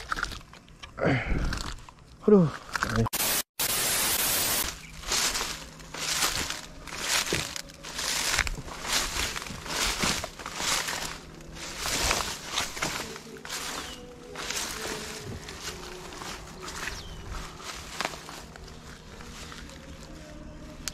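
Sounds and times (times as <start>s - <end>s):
static hiss: 3.0s - 7.3s
footsteps through rustling leaves: 3.2s - 20.9s.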